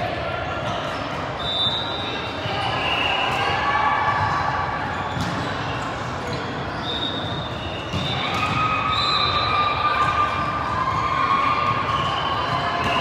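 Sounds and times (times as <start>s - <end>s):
players and spectators calling out: 0.0s - 13.0s
volleyball hits: 3.2s - 5.7s, 7.2s - 13.0s.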